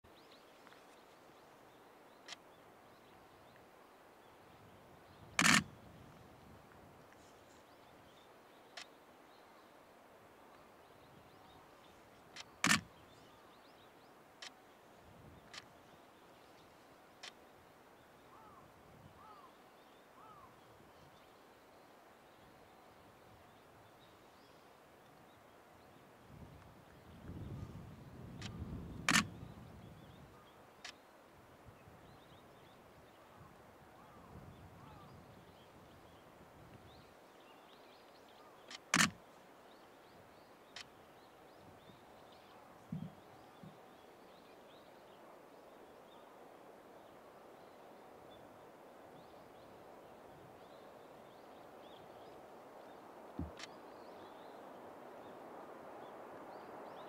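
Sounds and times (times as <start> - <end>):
sharp double click: 5.4 - 5.7, 12.6 - 12.9, 28.4 - 29.3, 38.7 - 39.2
faint bird chirps: 7.1 - 26.0, 26.8 - 57.0
faint ticks: 17.2 - 17.4
sharp snap: 38.7 - 39.2.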